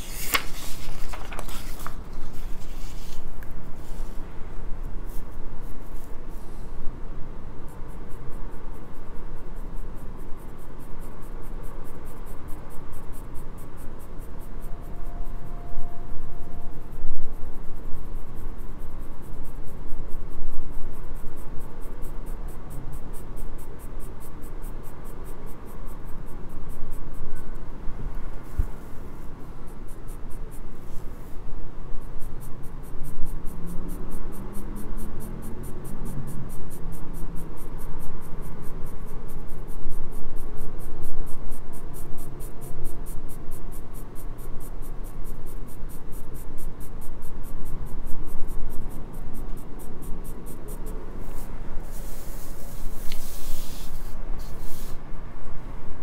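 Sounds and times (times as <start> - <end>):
pencil scratching on paper: 0.0 - 4.2, 45.3 - 55.0.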